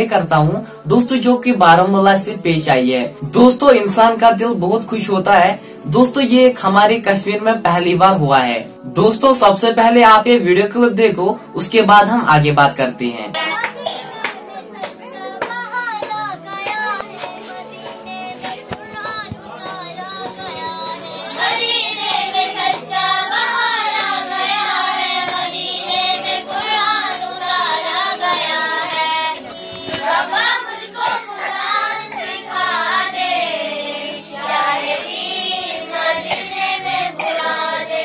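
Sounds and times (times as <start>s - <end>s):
women singing devotional song: 13.1s - 38.0s.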